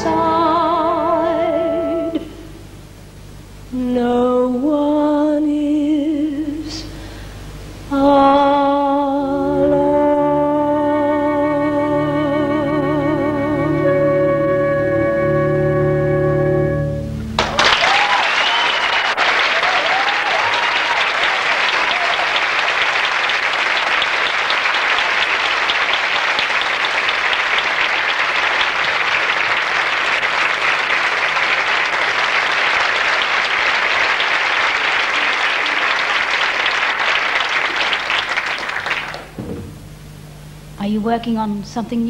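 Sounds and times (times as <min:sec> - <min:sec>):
held music chord: 0:00.0 - 0:02.6, 0:08.8 - 0:17.4
cheers and whistles: 0:17.4 - 0:23.1
audience applauding: 0:17.4 - 0:39.4.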